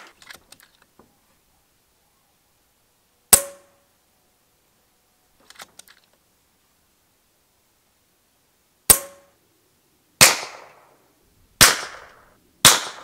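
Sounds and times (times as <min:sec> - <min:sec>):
air rifle shot: 0:10.2 - 0:10.8, 0:11.6 - 0:13.0.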